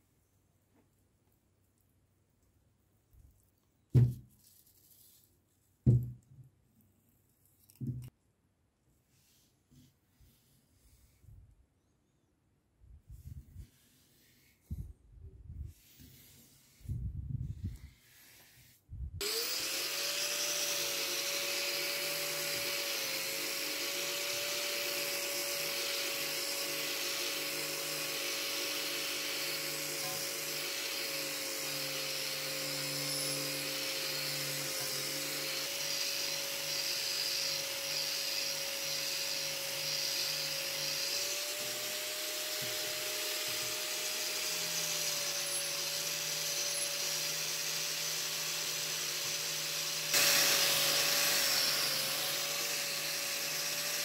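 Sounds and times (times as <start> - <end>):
angle grinder motor whine: 19.2 - 54.0.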